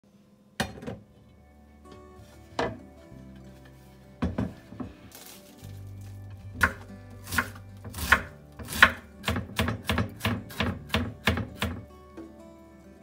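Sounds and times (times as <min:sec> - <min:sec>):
knife chopping on wooden board: 0:06.6 - 0:11.8.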